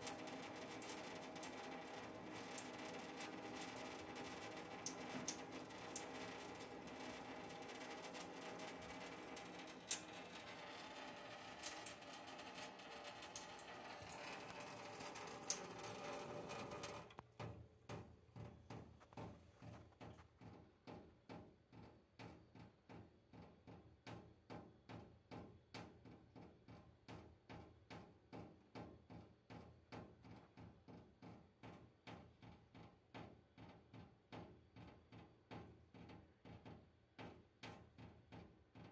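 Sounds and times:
tap water trickling into steel sink: 0.0s - 17.2s
water dripping on steel: 0.0s - 18.9s.

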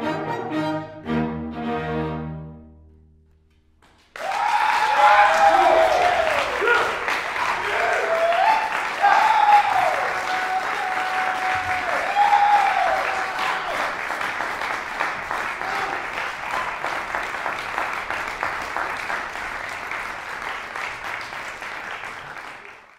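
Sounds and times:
audience applauding: 3.8s - 22.9s.

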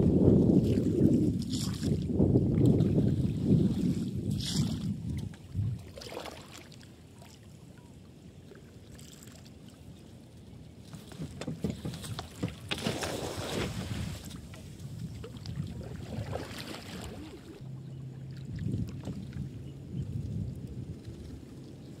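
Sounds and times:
gently moving water: 0.5s - 10.0s, 10.9s - 21.9s
cast net clicks and splashes: 11.0s - 14.4s.

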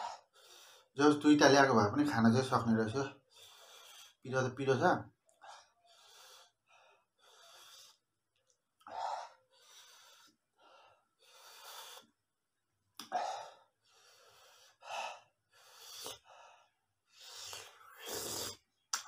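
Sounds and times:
man breathing hard: 0.0s - 1.0s, 3.2s - 4.2s, 5.4s - 8.1s, 8.8s - 12.2s, 13.0s - 18.4s.

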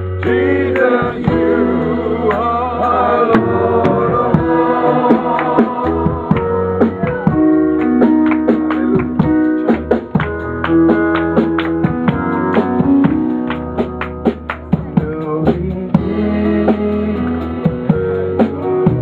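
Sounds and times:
people singing: 0.0s - 7.4s
bass guitar: 0.0s - 19.0s
drums: 0.0s - 19.0s
keyboard playing: 0.0s - 19.0s.

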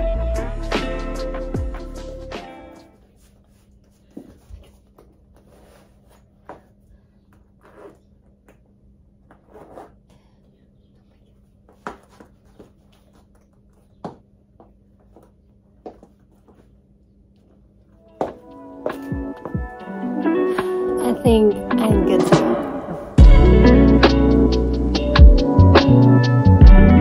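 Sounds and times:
low room hum: 0.0s - 20.4s.

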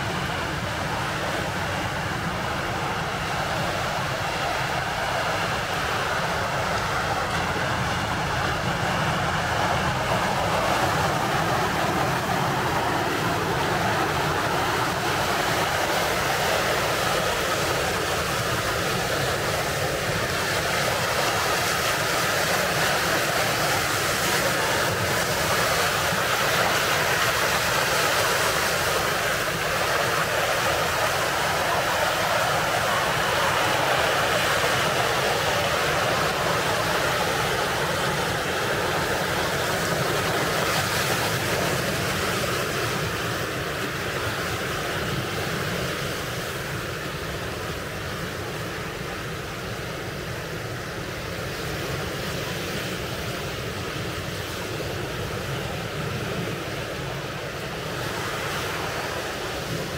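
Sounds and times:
ocean surf washing on shore: 0.0s - 59.9s.

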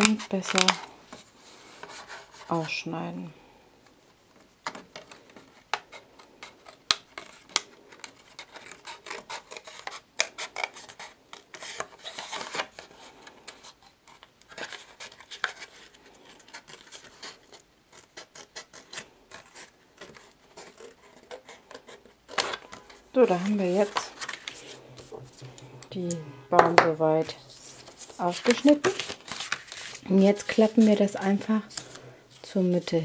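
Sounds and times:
card rustling: 0.0s - 2.8s, 4.4s - 33.0s.

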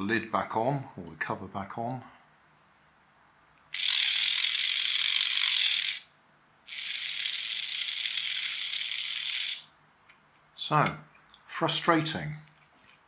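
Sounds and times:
toy motor and gears whirring: 3.7s - 6.1s, 6.7s - 9.7s.

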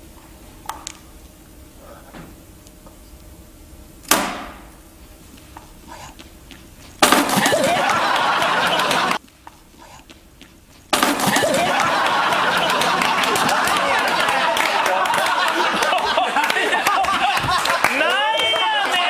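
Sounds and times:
studio crowd laughing and shouting: 7.3s - 9.2s, 11.1s - 19.0s.

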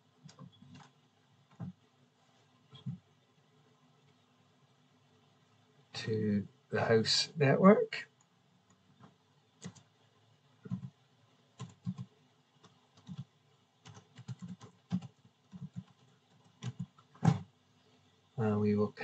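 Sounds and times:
typing on laptop keyboard: 0.2s - 1.8s, 8.7s - 9.9s, 10.6s - 11.0s, 11.6s - 17.4s.

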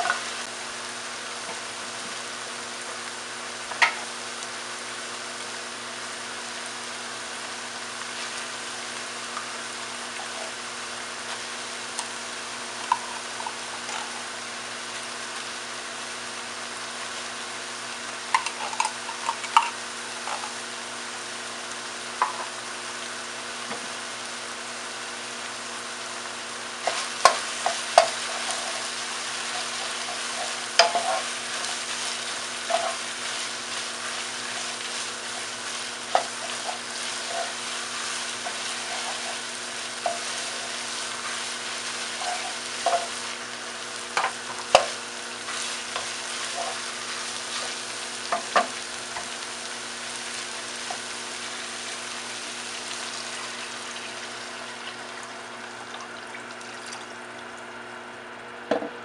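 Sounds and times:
meat and onions sizzling in a pan: 0.0s - 56.2s
utensil knocking and scraping a pan: 12.9s - 14.2s, 18.3s - 20.6s, 26.8s - 43.2s, 44.2s - 49.3s.

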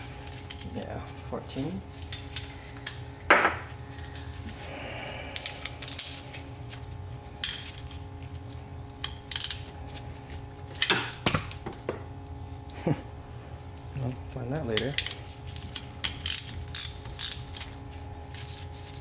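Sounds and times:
ratchet clicks: 16.1s - 17.4s.

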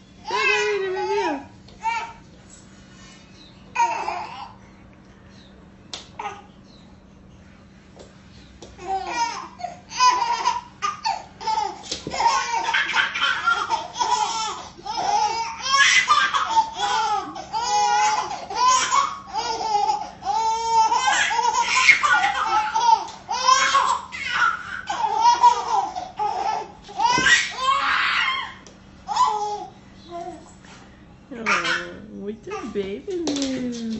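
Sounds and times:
babies laughing: 3.7s - 4.6s, 8.8s - 30.4s, 31.4s - 31.9s.

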